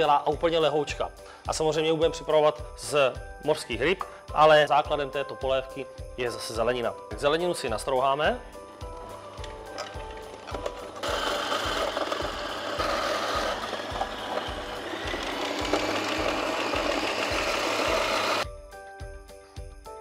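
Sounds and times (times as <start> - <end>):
music with a steady beat: 0.3 - 20.0
food processor shredding vegetables: 10.5 - 18.4.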